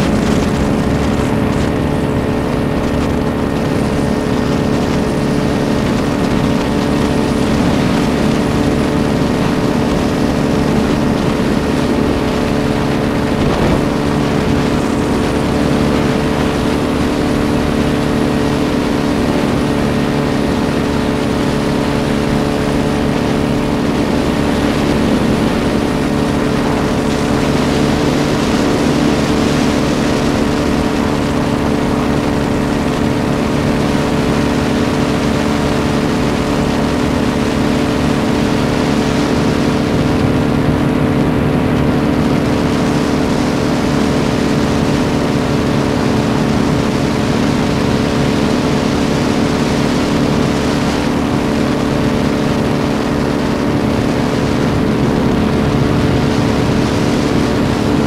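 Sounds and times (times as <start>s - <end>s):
paraglider engine and propeller: 0.0s - 58.0s.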